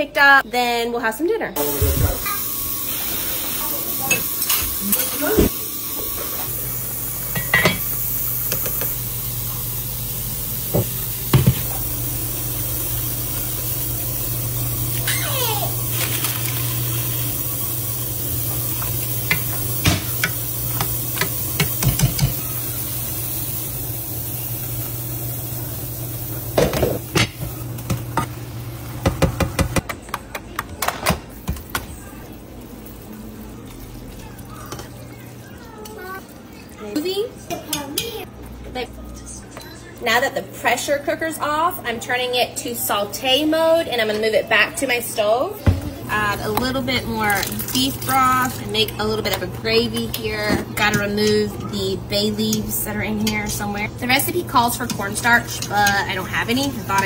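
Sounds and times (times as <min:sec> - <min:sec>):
spoon and pots clinking: 0:07.3 - 0:09.0.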